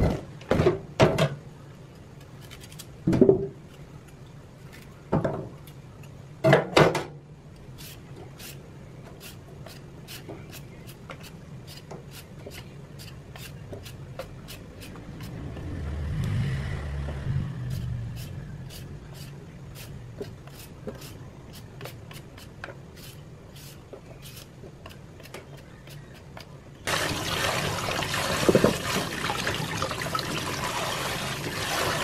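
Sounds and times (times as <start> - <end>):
low steady hum: 0.0 - 32.0
peeler scraping radish skin: 2.2 - 2.9, 7.8 - 8.6, 9.2 - 15.5, 17.7 - 26.5.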